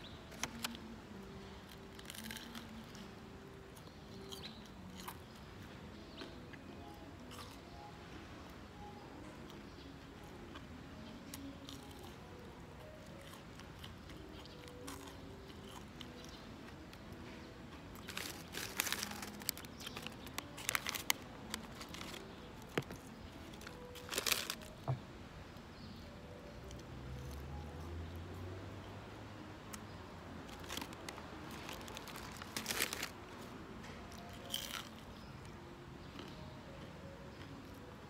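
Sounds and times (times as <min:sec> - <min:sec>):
quiet chewing: 0:06.1 - 0:07.8, 0:11.3 - 0:25.0
paper bag crinkling: 0:18.0 - 0:22.9, 0:23.6 - 0:24.8, 0:30.5 - 0:33.2.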